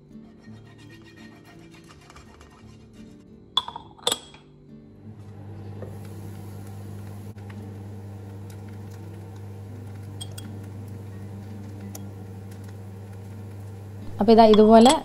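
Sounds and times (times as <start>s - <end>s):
low electrical hum: 5.0s - 15.0s.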